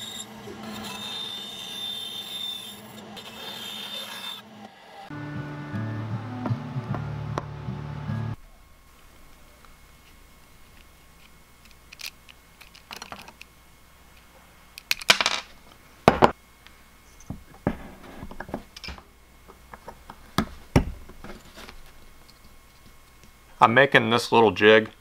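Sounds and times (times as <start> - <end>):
small parts clicking and tapping: 10.8 - 13.5.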